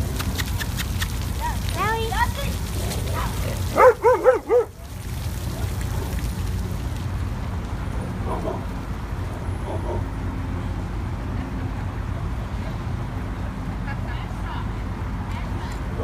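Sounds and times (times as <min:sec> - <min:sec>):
low rumble of city traffic: 0:00.0 - 0:16.0
dog barking: 0:03.7 - 0:04.8.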